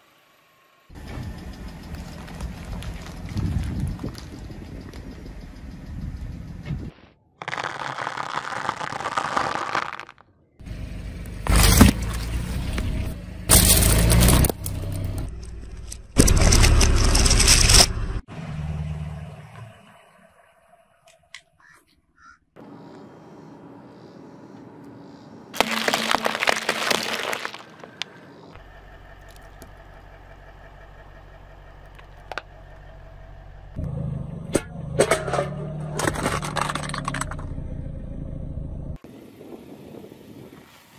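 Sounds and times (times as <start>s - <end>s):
car engine humming: 0.0s - 6.6s, 10.6s - 21.6s, 22.6s - 39.0s
dry pasta crackling under tyre: 7.4s - 10.2s, 25.6s - 28.2s
tyre crushing plastic markers: 7.4s - 10.2s, 25.6s - 27.9s
loud crunches: 7.4s - 10.3s, 25.6s - 28.2s.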